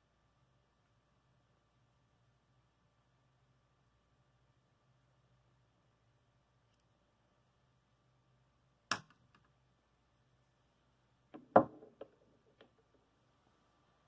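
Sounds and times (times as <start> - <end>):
metal ball knocking on mat: 11.3 - 13.0.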